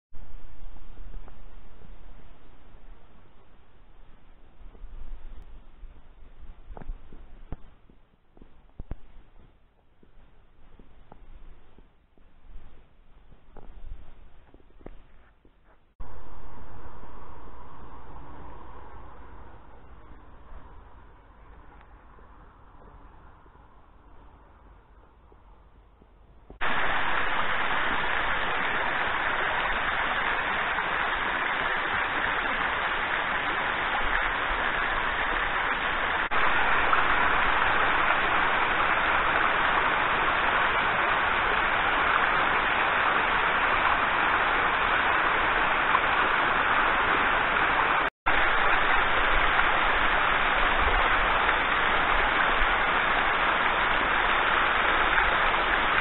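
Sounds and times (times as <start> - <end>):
waterfall splashing over rock: 26.6 - 56.0.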